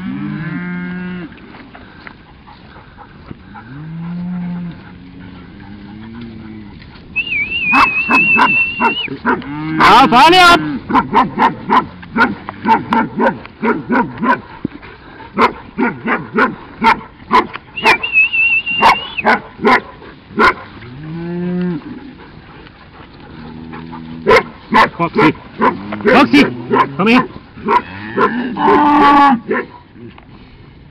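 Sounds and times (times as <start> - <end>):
cattle mooing: 0.0 - 1.4, 3.4 - 14.4, 17.8 - 19.4, 20.4 - 22.4, 23.2 - 30.2
high wavering whistle: 7.2 - 9.1, 17.8 - 19.2.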